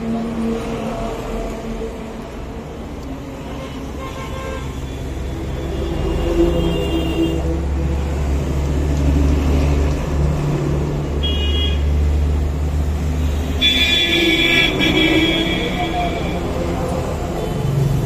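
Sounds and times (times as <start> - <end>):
traffic engine rumble: 0.0 - 18.0
vehicle horns honking: 11.2 - 11.9, 13.5 - 16.4.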